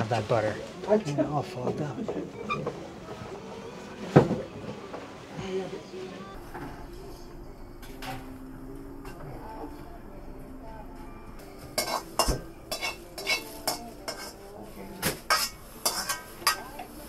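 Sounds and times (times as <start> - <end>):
metal ladle scraping iron wok: 11.8 - 14.4, 15.2 - 16.8.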